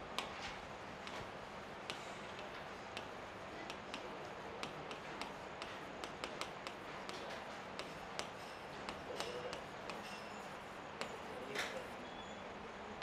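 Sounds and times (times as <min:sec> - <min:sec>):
chalk tapping and scratching: 0:00.1 - 0:12.0
chalk scraping: 0:01.0 - 0:12.0
chalk squeaks: 0:04.6 - 0:12.4.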